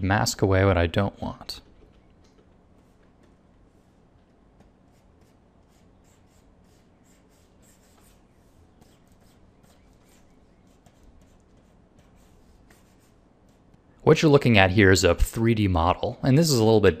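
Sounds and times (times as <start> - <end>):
low steady hum: 0.0 - 17.0
pen stylus scratching on tablet: 2.3 - 4.0, 4.6 - 13.8.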